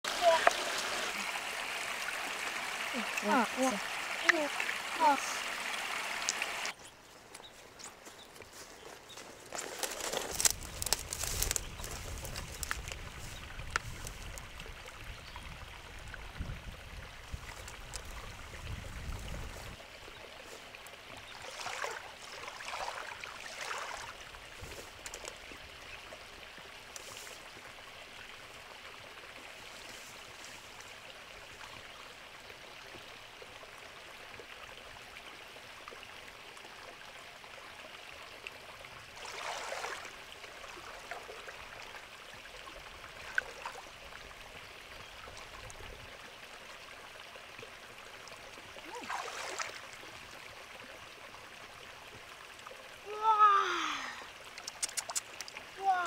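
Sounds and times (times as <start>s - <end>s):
shallow water sloshing and splashing: 20.4s - 25.5s, 39.1s - 42.0s, 48.8s - 50.4s.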